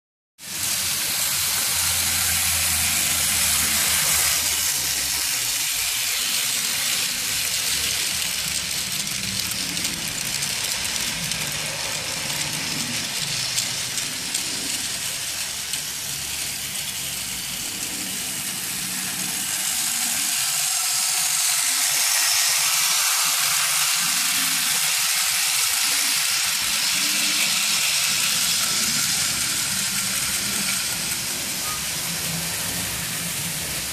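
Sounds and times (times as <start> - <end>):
model train running on track: 0.4 - 33.9.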